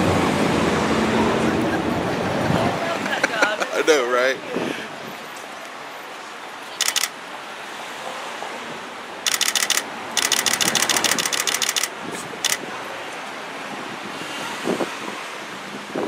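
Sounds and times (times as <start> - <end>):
street noise: 0.0 - 16.0
camera shutters firing in bursts: 6.8 - 7.2, 9.3 - 12.6.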